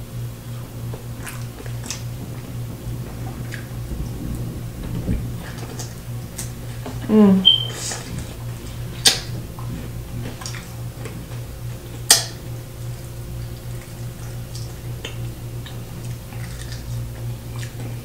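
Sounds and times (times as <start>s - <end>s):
steady low hum: 0.0s - 18.0s
chewing: 7.6s - 18.0s.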